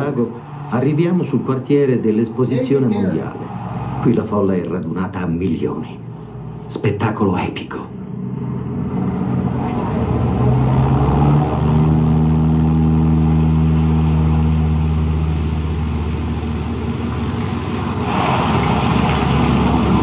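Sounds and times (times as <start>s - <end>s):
propeller aircraft engines droning: 0.0s - 20.0s
rushing hiss: 15.2s - 20.0s.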